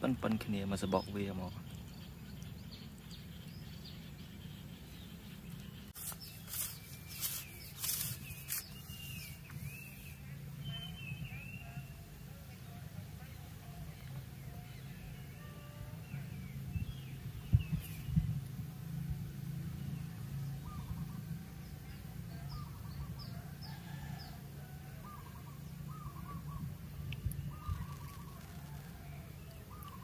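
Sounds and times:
birds calling: 0:00.0 - 0:12.0, 0:20.4 - 0:30.0.

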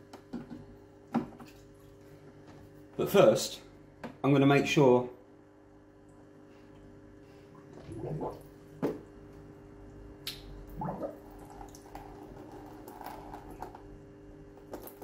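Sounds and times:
water dripping: 0:09.8 - 0:13.9, 0:14.6 - 0:15.0.

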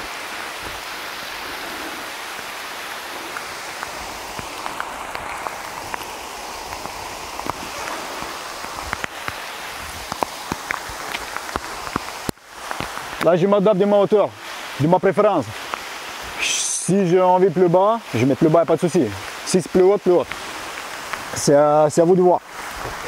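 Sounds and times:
rain on foliage: 0:00.0 - 0:23.0
sharp drip ticks: 0:03.3 - 0:07.6, 0:10.0 - 0:13.3, 0:15.6 - 0:15.9.

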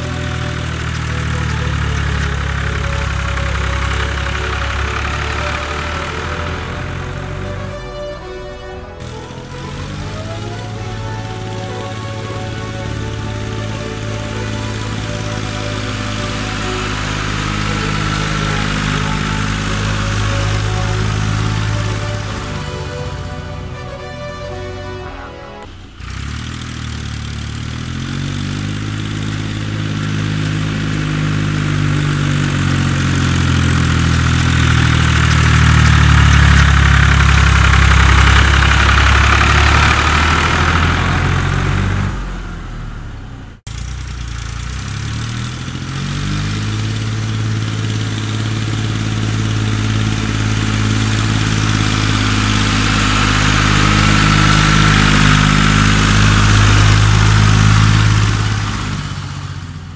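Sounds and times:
tractor diesel engine labouring: 0:00.0 - 0:59.9.

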